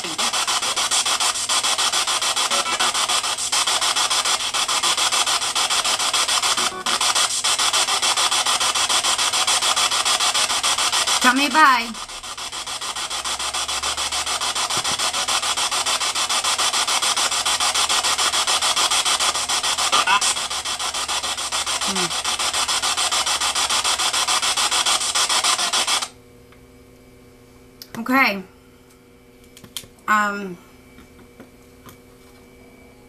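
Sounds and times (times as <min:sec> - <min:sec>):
chopping radio static: 0:00.0 - 0:26.2.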